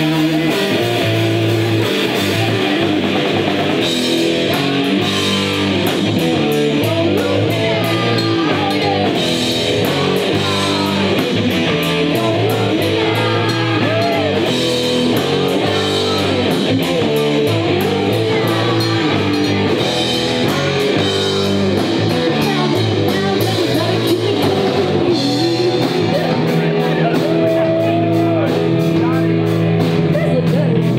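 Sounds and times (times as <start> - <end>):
bass guitar: 0.0 - 30.9
drum kit with cymbals: 0.0 - 30.9
electric guitar: 0.0 - 30.9
woman singing: 6.8 - 9.3, 10.2 - 14.6, 17.4 - 19.8, 22.3 - 26.1.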